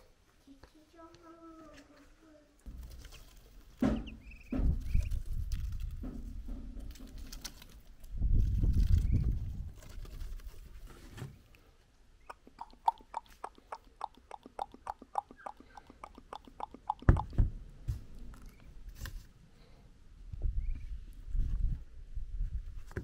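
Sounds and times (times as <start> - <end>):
ducklings pecking: 2.6 - 8.0, 12.2 - 17.4.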